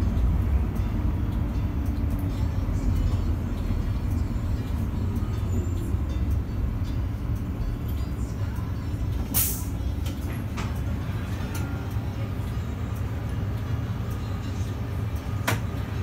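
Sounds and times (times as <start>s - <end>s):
bus engine and road rumble: 0.0s - 16.0s
air brake hiss: 9.3s - 9.8s.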